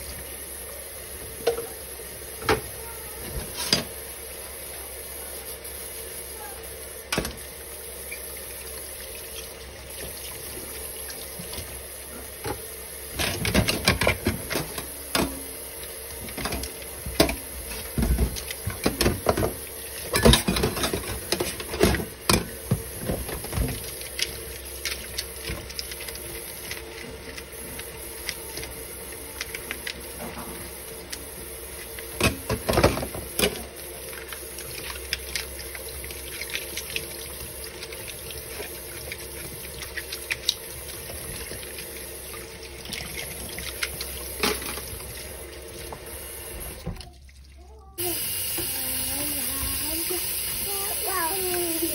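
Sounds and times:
faucet running into sink: 7.0 - 51.9
dishes clattering: 18.0 - 22.8.

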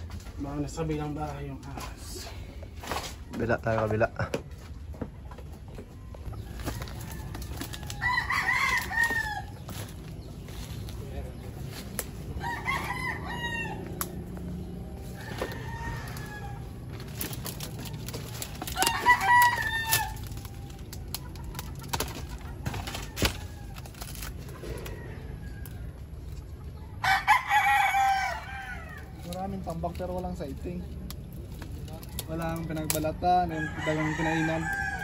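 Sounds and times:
rooster crowing: 6.3 - 10.0, 12.4 - 17.2, 17.8 - 20.8, 27.0 - 29.1, 33.4 - 35.0
dry debris snapping and rustling: 6.3 - 12.8, 13.8 - 26.4, 27.5 - 33.2.

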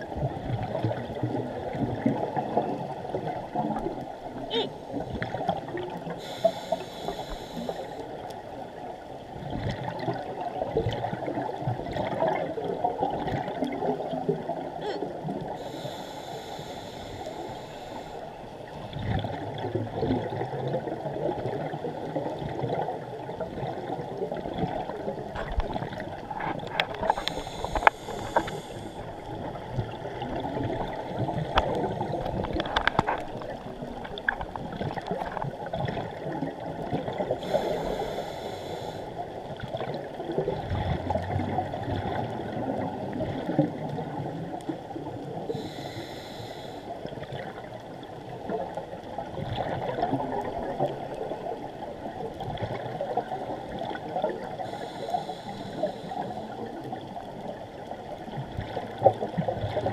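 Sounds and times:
regulator hissing inhalations: 6.2 - 8.1, 15.6 - 18.3, 27.0 - 29.1, 37.4 - 39.1, 45.5 - 46.9, 54.6 - 56.5.

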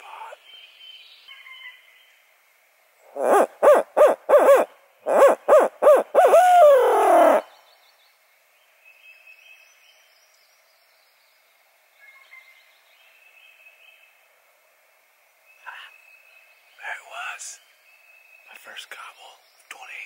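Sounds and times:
owl hooting: 3.0 - 7.6.

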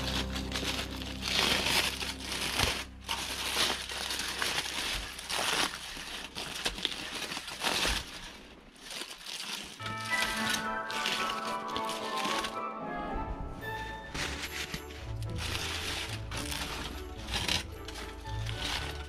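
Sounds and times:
aluminium foil crinkling: 0.0 - 12.7, 14.0 - 19.0.

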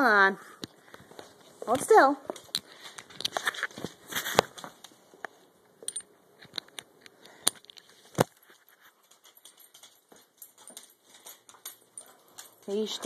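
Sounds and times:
dog harness clicks and jingles: 7.5 - 13.0.

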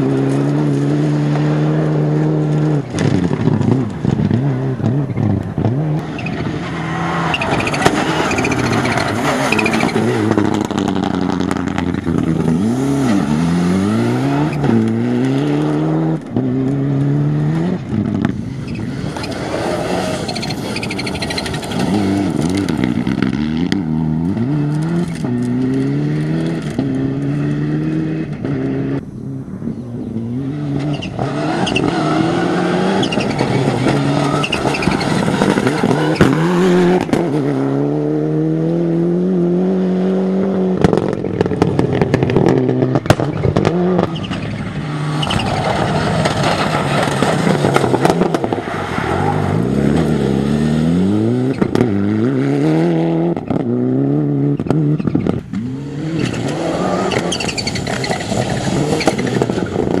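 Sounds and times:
rally car engines revving: 0.0 - 60.0
sharp cracks and clatter: 40.8 - 49.0.

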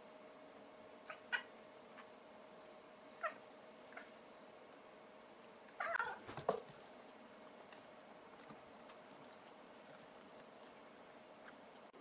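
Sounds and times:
cat meowing: 5.8 - 6.2.

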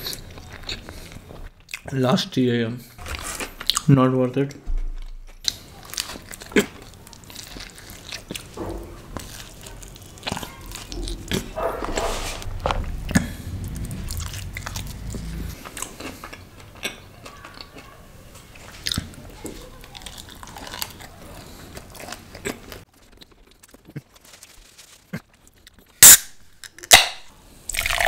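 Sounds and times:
wet chewing: 0.0 - 1.9, 5.0 - 24.4.

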